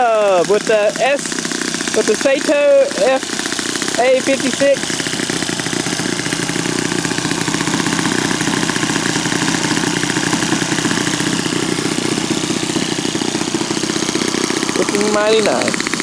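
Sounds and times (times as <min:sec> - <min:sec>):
model airplane engine running: 0:00.0 - 0:16.0.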